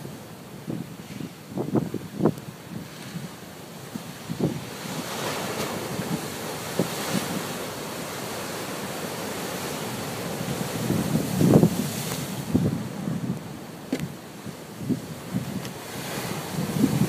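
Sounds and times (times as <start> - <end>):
wind buffeting microphone: 0.0 - 7.7, 10.1 - 17.0
surf breaking on rocks: 4.0 - 17.0.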